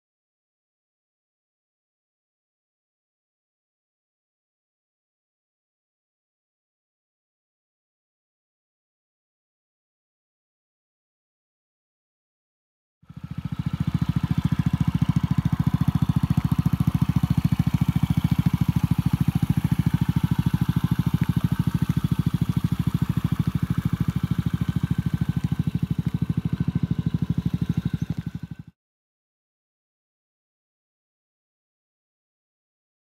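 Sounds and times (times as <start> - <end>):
scooter engine idling: 13.1 - 28.8.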